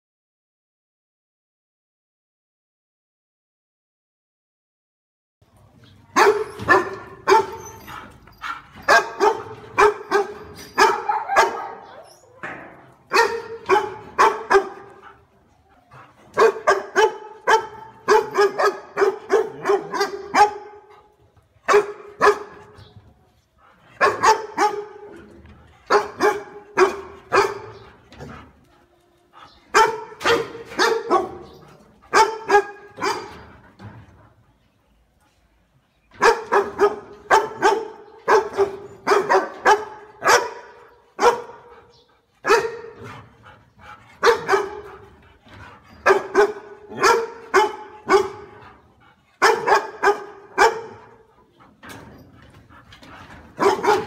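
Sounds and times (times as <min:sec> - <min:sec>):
dog barking: 0:06.2 - 0:07.7, 0:08.4 - 0:12.0, 0:13.1 - 0:15.2, 0:16.4 - 0:20.9, 0:21.7 - 0:22.6, 0:24.0 - 0:25.2, 0:25.9 - 0:27.8, 0:29.7 - 0:33.4, 0:36.2 - 0:43.0, 0:44.2 - 0:45.0, 0:46.0 - 0:48.6, 0:49.4 - 0:51.3, 0:53.6 - 0:54.0.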